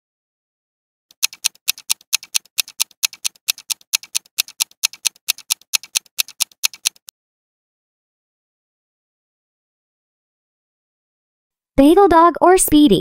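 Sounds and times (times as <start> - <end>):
clock ticking fast: 1.1 - 7.1.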